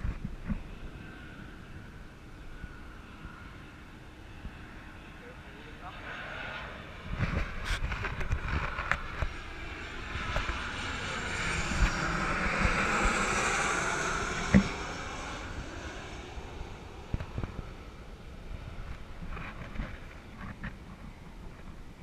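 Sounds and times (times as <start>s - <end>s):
wind buffeting microphone: 5.9s - 22.0s.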